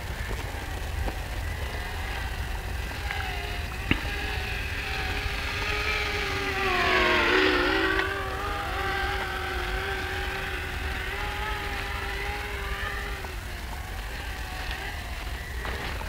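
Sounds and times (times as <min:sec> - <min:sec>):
drone propellers whining: 0:00.0 - 0:16.0.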